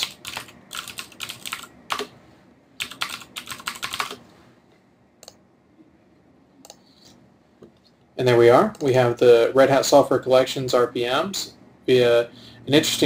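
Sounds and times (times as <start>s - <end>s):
keyboard keystrokes: 2.8s - 4.2s.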